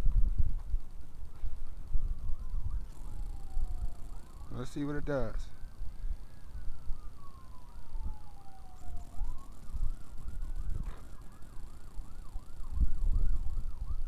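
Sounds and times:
wind rumbling on microphone: 0.0 - 14.0
warbling siren: 0.8 - 14.0.

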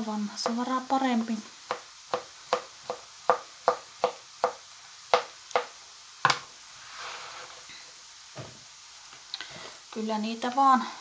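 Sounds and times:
knife chopping on cutting board: 1.7 - 6.4.

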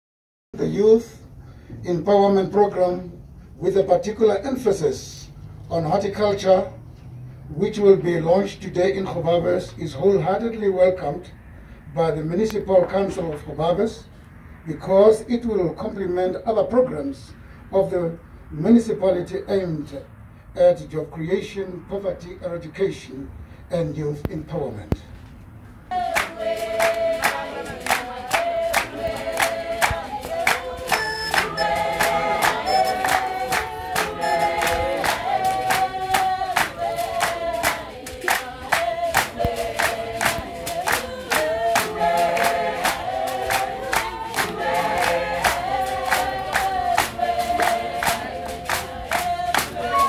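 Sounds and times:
group singing: 25.9 - 50.0
hand claps: 26.1 - 50.0.

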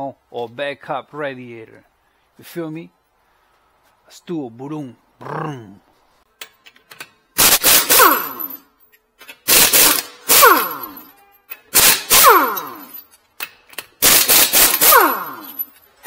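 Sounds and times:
impact wrench hammering: 7.4 - 8.6, 9.4 - 15.6.

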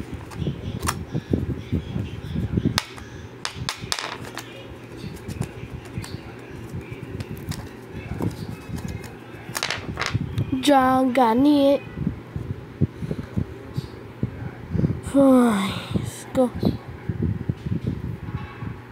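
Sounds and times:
object tapping on ceramic tiles: 2.8 - 4.4
handling rustle: 3.9 - 10.2.

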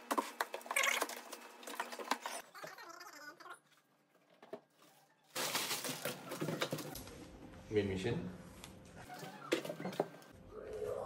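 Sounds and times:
plastic wrap crinkling: 4.7 - 7.0.

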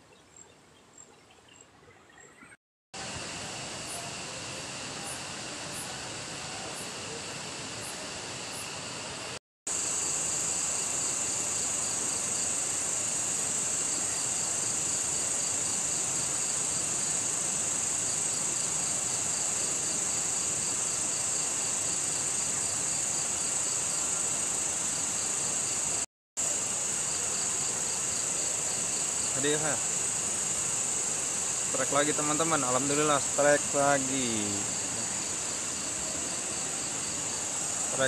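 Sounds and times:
pulsing insect trill: 0.4 - 38.0
crickets shrilling: 3.0 - 38.0.

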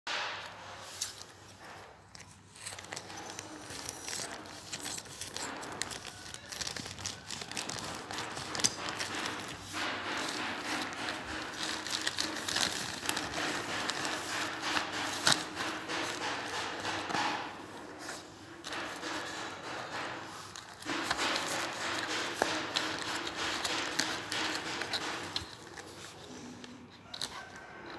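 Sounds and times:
plastic mailer bag crinkling: 2.5 - 17.1.

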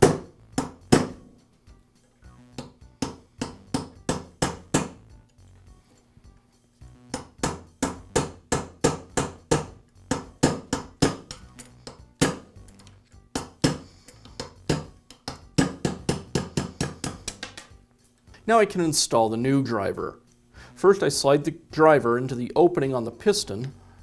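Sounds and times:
hammer tapping metal punch: 7.1 - 17.6.

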